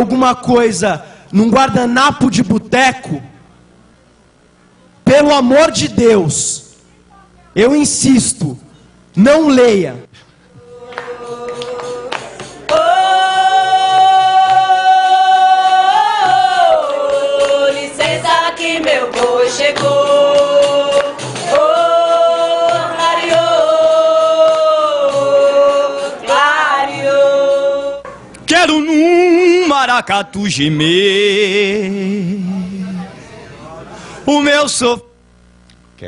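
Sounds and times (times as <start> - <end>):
man singing long held notes: 19.6 - 33.2.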